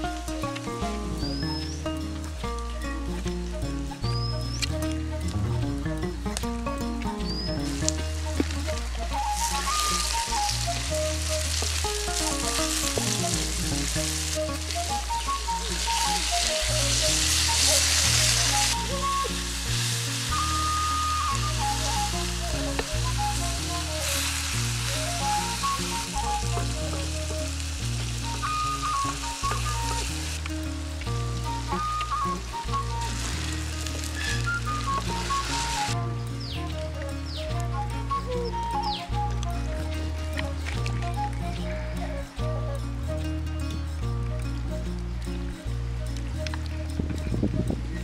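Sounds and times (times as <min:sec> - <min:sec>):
background music with bass line: 0:00.0 - 0:48.0
food sizzling in hot oil: 0:07.7 - 0:36.0.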